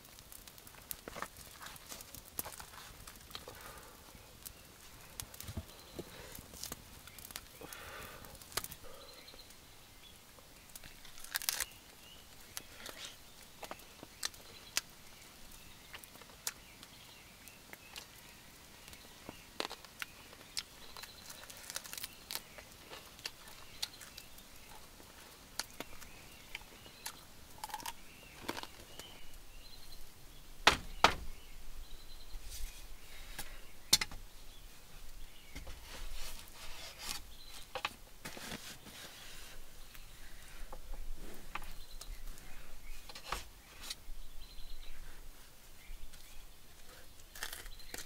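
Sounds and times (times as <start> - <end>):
person eating by hand: 18.9 - 29.2, 47.1 - 48.0
sharp knocks: 30.6 - 31.3.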